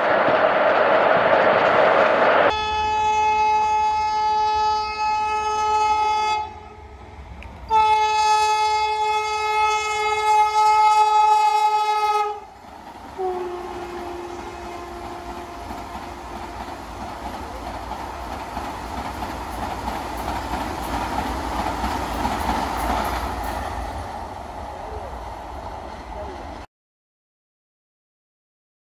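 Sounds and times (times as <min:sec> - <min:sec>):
train coaches rushing past: 0:00.0 - 0:04.0, 0:06.8 - 0:26.7
train horn blasts: 0:02.5 - 0:06.8, 0:07.7 - 0:12.6, 0:13.2 - 0:16.7.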